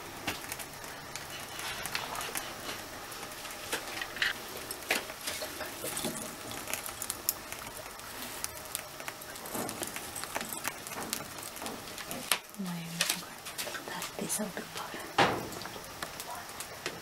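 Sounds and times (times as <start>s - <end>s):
faint hiss: 0.0s - 17.0s
herbs crackling on charcoal: 0.0s - 17.0s.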